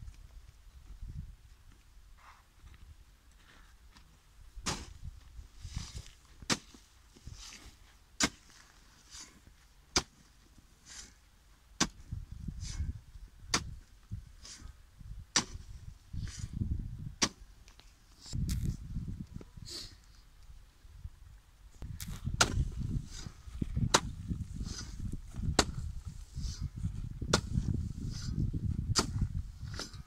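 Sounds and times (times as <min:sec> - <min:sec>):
hoe striking dry soil: 0:04.6 - 0:18.8, 0:21.8 - 0:30.0.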